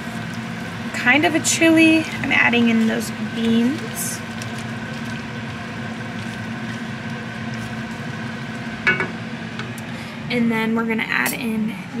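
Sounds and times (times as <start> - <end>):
chili simmering in pot: 0.0 - 10.1
wooden spatula stirring: 1.8 - 8.8.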